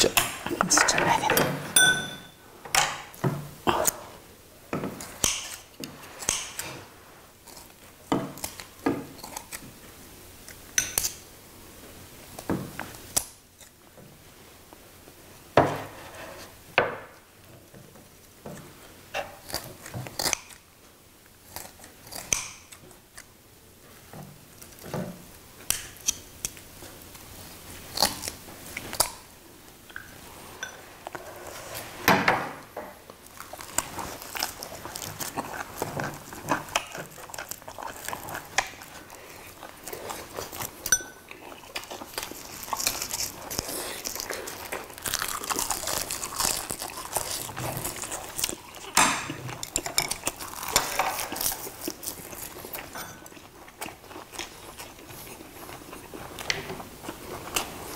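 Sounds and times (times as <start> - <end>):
biting and chewing food: 4.9 - 11.3, 17.7 - 31.8, 33.0 - 57.9.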